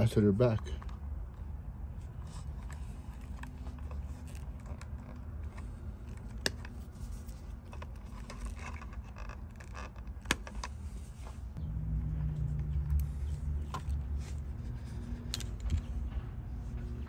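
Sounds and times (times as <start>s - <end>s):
wires and connectors rattling: 12.0s - 16.2s.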